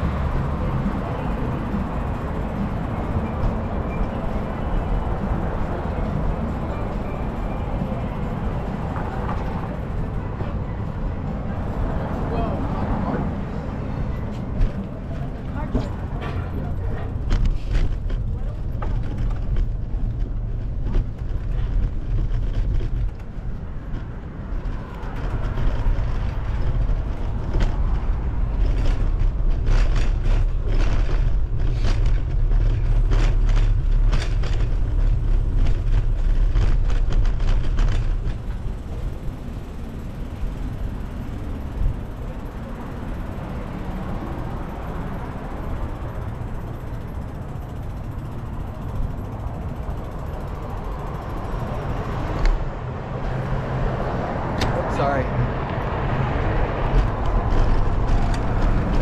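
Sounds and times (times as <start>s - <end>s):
bicycle tyre and road noise: 0.0s - 59.0s
sharp clicks and rattles: 14.5s - 59.0s
wind noise on microphone: 15.7s - 59.0s.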